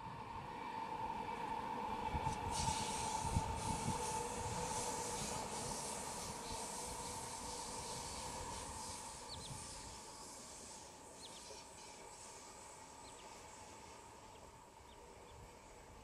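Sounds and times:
distant train rumble: 0.0s - 16.0s.

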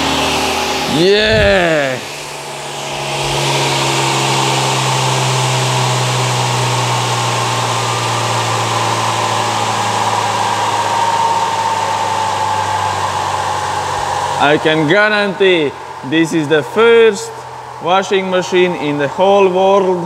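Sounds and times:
rushing air: 0.9s - 3.5s.

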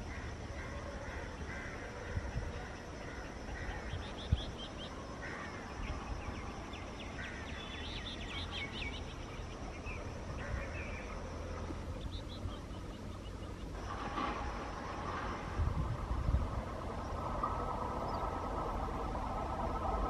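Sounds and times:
small birds chirping: 0.0s - 13.9s
low steady rumble: 0.0s - 20.0s.

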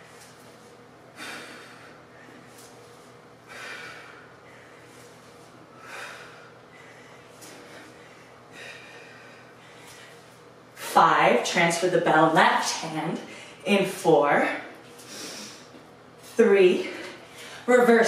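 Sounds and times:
woman breathing hard: 1.1s - 2.7s, 3.4s - 10.3s.

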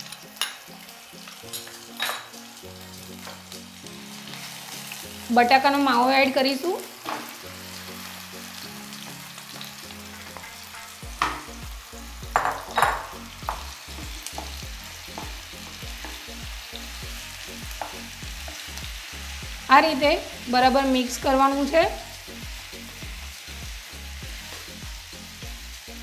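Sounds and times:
potato sizzling in hot oil: 0.0s - 26.0s
wooden spatula scraping pan: 10.0s - 11.4s.

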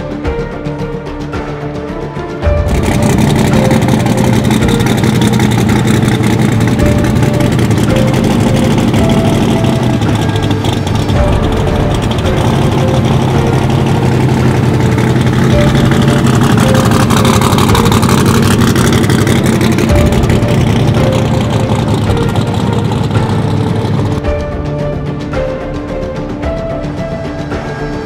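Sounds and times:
car engine idling loud: 2.6s - 24.2s.

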